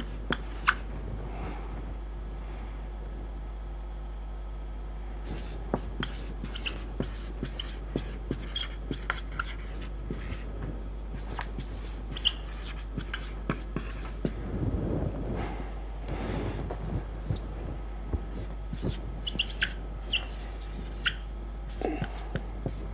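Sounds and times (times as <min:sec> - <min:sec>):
marker tapping and squeaking: 0:00.0 - 0:00.9, 0:05.3 - 0:10.5, 0:11.1 - 0:14.4, 0:16.9 - 0:17.4, 0:18.2 - 0:22.9
steady low hum: 0:00.0 - 0:22.9.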